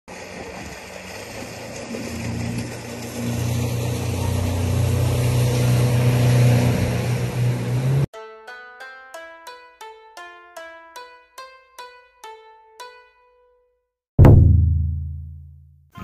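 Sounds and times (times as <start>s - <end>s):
rush of water: 0.1s - 8.0s
boat motor running: 0.1s - 8.1s.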